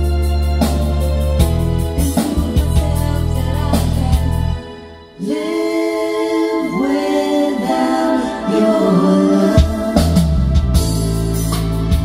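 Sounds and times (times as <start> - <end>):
deep bass notes: 0.0 - 4.6, 9.0 - 12.0
choral music: 0.0 - 12.0.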